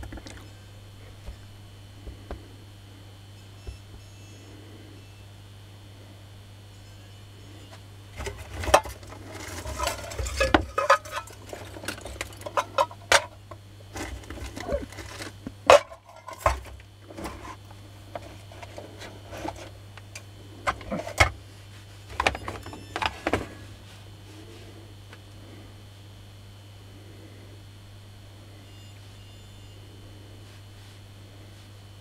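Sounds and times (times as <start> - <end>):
steady low hum: 0.0 - 32.0
metal parts clicking and rattling: 8.2 - 19.7.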